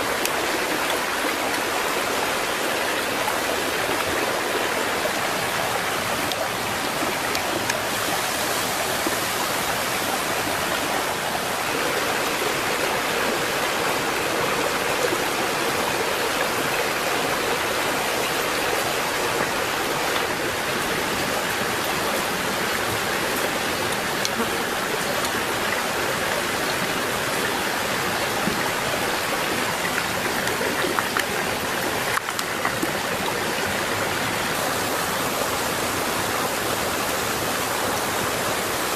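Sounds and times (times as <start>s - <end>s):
stream running over rocks: 0.0s - 38.9s.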